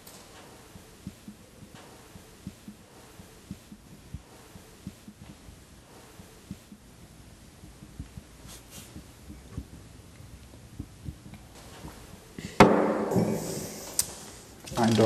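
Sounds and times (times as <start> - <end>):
heartbeat thumps: 0.0 - 13.9.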